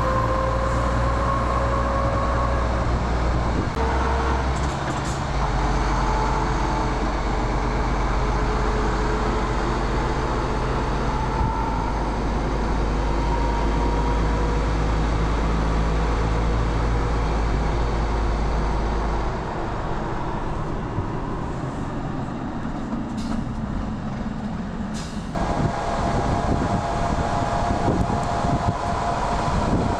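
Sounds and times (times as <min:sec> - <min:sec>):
truck diesel engine droning: 0:00.0 - 0:29.9
tyre and road noise: 0:00.0 - 0:29.9.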